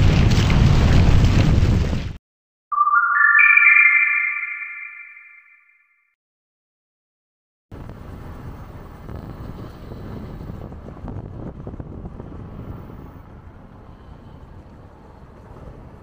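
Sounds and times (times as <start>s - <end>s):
wind buffeting microphone: 7.8s - 16.0s
road noise: 11.6s - 16.0s.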